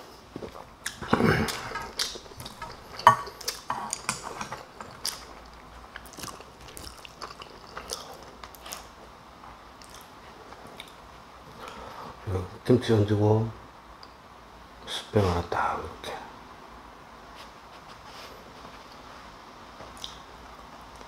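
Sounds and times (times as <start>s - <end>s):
person chewing food: 0.0s - 9.0s, 9.8s - 11.8s, 19.9s - 20.3s.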